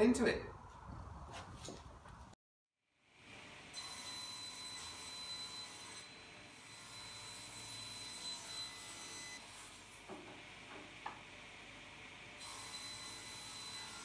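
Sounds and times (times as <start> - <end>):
table saw whining: 3.6 - 11.1, 12.4 - 14.0.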